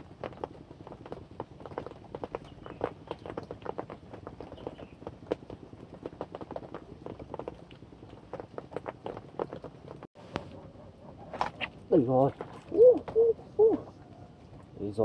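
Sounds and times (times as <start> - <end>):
raindrops tapping: 0.0 - 10.1.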